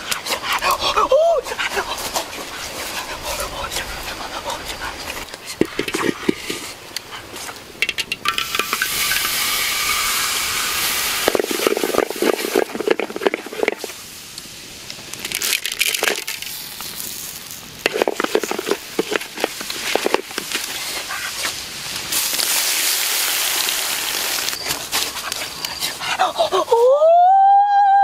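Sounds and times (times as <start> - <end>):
hot oil sizzling in wok: 8.2 - 25.0
wooden spoon scraping wok: 8.4 - 14.0, 17.8 - 21.6.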